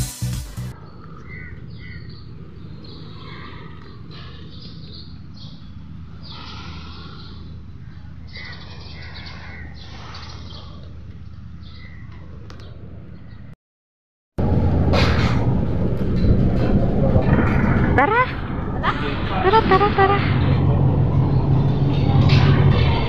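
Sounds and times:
birds chirping: 0:00.7 - 0:13.5
steady low rumble: 0:14.4 - 0:23.0.

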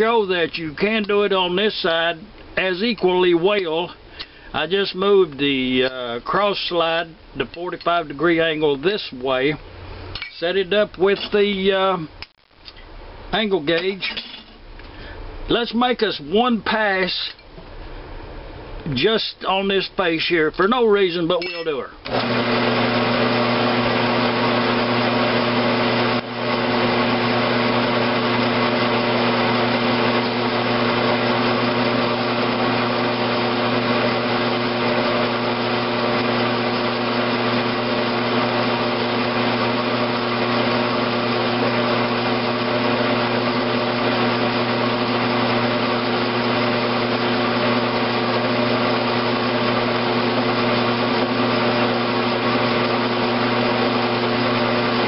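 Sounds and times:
lathe running with steady hum: 0:22.1 - 0:55.0.

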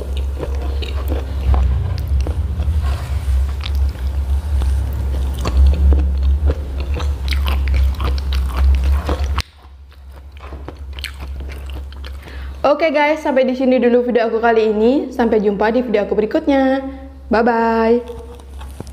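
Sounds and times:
chewing and biting food: 0:00.0 - 0:12.5, 0:18.0 - 0:18.9
steady low hum: 0:00.0 - 0:18.9.

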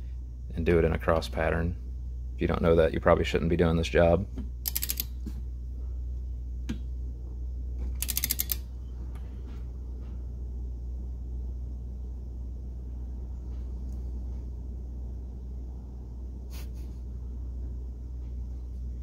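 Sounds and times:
steady low hum: 0:00.0 - 0:19.0
torque wrench ratchet clicking: 0:04.6 - 0:05.1, 0:08.0 - 0:08.6.

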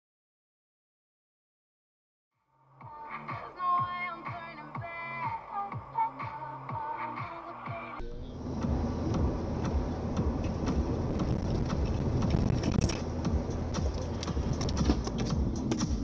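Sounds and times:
car engine and tyre rumble: 0:08.0 - 0:16.0.

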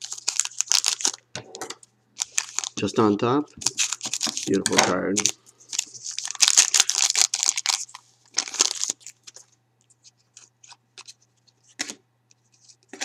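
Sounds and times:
foil wrapper crinkling: 0:00.0 - 0:01.2, 0:02.2 - 0:03.0, 0:03.6 - 0:09.5
cards rustling and clicking: 0:02.2 - 0:02.9, 0:03.6 - 0:13.0.

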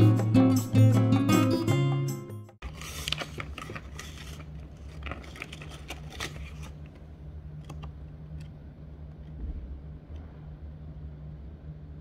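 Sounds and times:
steady low hum: 0:02.6 - 0:12.0.

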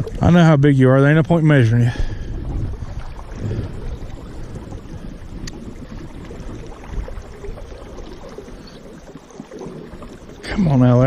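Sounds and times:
river water flowing over riffles: 0:00.0 - 0:11.0
wind rumbling on microphone: 0:00.0 - 0:11.0
faint click: 0:05.4 - 0:05.6.

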